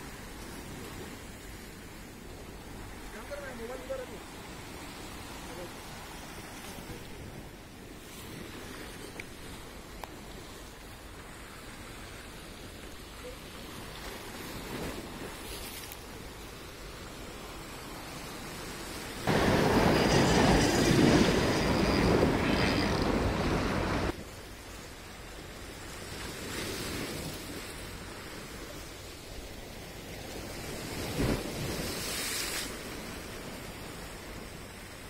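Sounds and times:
waves washing over rocks: 0:00.0 - 0:25.3
loud rushing noise: 0:19.3 - 0:24.1.

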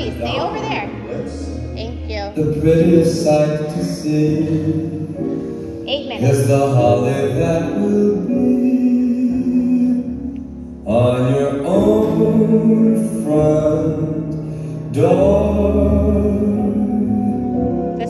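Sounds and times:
music with singing: 0:00.0 - 0:18.0.

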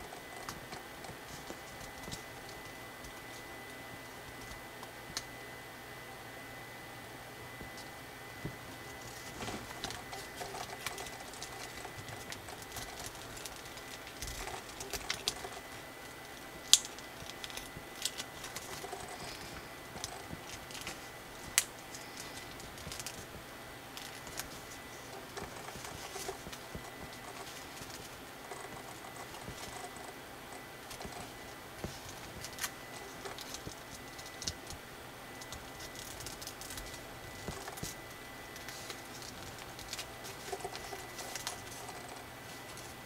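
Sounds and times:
paper crinkling and rustling: 0:08.4 - 0:34.8, 0:35.4 - 0:43.0.

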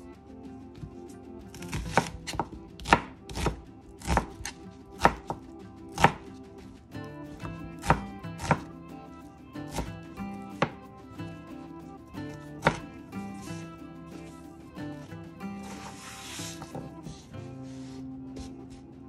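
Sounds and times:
knife chopping on cutting board: 0:01.5 - 0:06.2, 0:07.8 - 0:08.7, 0:09.7 - 0:09.9, 0:10.6 - 0:10.8, 0:12.6 - 0:13.6.

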